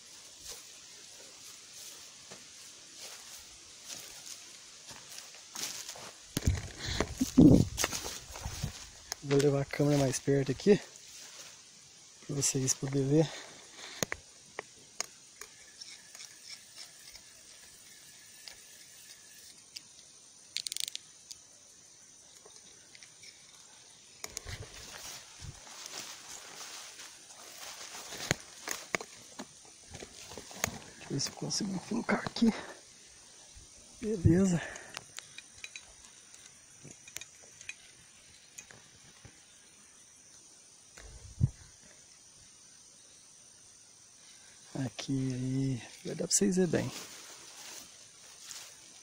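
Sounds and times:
crickets chirring: 0.0 - 49.0
steady high hiss: 0.0 - 49.0
small clicks: 19.4 - 21.4.

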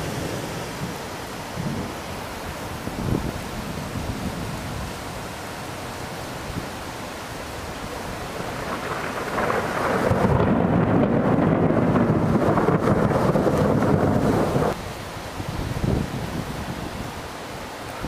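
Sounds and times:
rain hissing: 0.0 - 18.0
thunder rumbling: 8.2 - 14.8.

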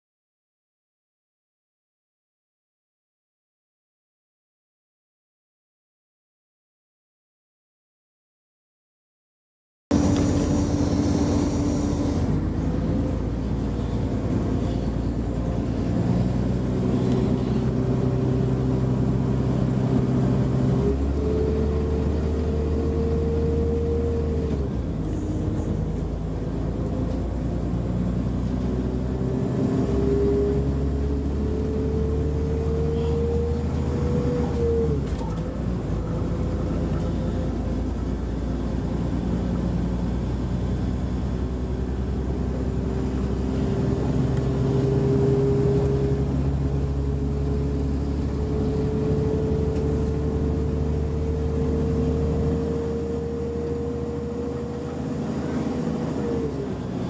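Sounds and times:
train running rumble: 9.9 - 21.1
train engine whine: 9.9 - 57.0.

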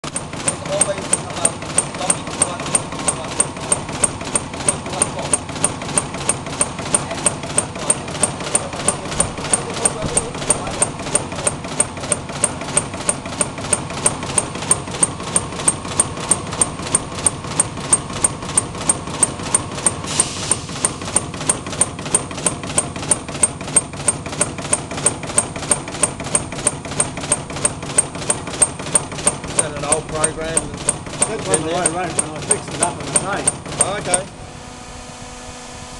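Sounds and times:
punch press punching sheet metal: 0.0 - 34.5
short hiss: 20.0 - 21.0.

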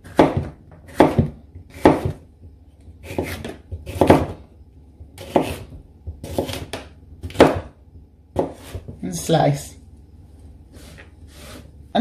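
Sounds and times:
knife slicing pepper: 0.0 - 2.2, 3.0 - 4.4, 5.2 - 7.7.

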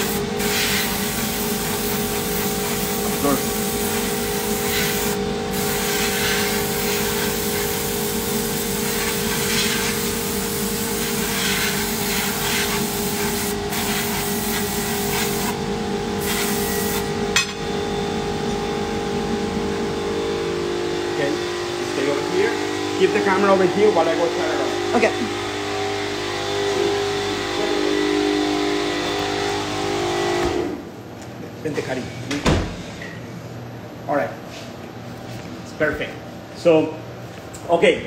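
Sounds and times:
airbrush spraying hiss: 0.0 - 15.6, 16.2 - 17.1
machine hum: 14.4 - 34.0.

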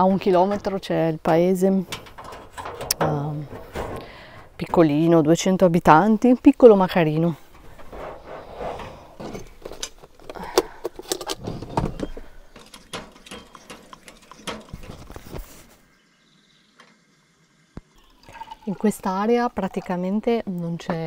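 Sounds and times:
metal coffee pot clinking: 0.0 - 5.4, 12.0 - 15.4.

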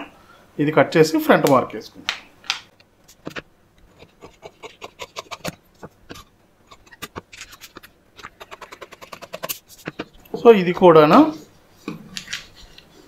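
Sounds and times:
scissors snipping paper: 3.1 - 10.1
paper rustling: 3.1 - 10.2, 12.2 - 13.0.

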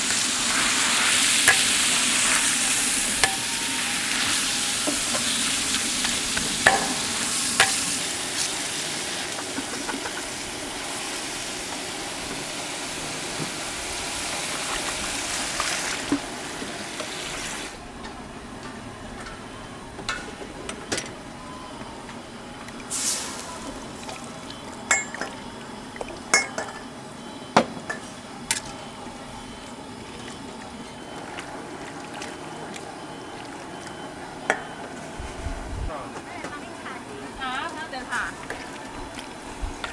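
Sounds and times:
meat sizzling in oil: 0.0 - 17.7.

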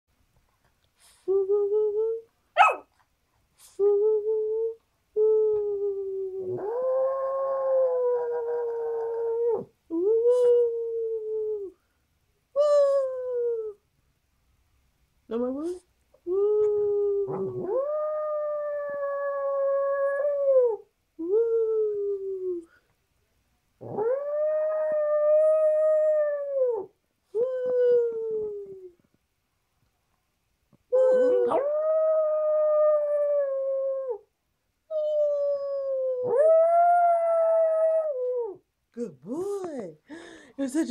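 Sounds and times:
dog howling: 17.2 - 20.8, 23.8 - 26.9, 31.0 - 34.2, 35.1 - 38.6
person howling: 30.9 - 34.2.

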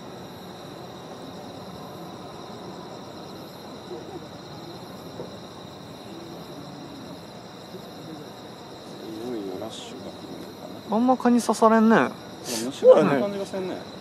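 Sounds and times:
crickets chirping: 0.0 - 14.0.

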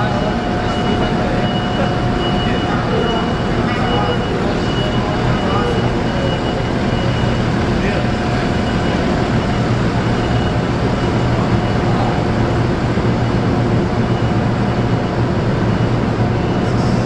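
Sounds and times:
heavy machinery drone: 0.0 - 17.0.

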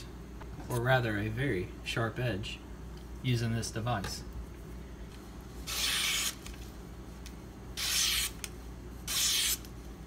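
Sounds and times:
knife slicing paper: 7.8 - 8.4.

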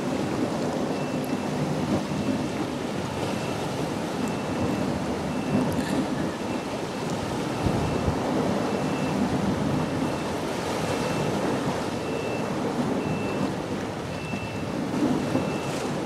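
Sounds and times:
choppy river water: 0.0 - 16.0
wind buffeting microphone: 0.0 - 16.0
wind noise: 7.0 - 16.0.

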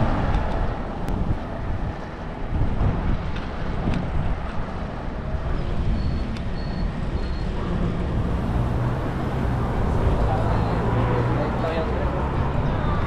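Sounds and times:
road noise and passing cars: 0.0 - 13.0
car engine humming: 7.6 - 13.0.

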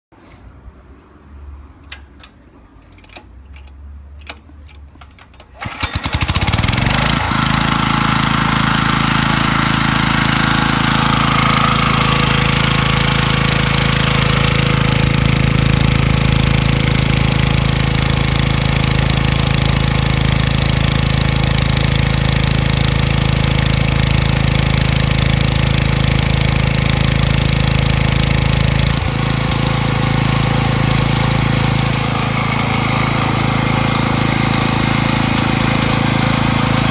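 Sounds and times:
pull-start clicks: 1.8 - 7.2
air compressor engine running: 4.4 - 36.9.

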